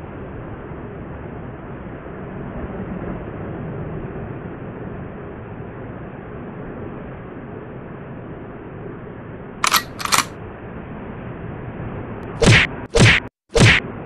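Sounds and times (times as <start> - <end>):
camera shutter clicks: 9.6 - 10.3
outdoor background noise: 9.6 - 10.3
loud whack sound effects: 12.4 - 13.8.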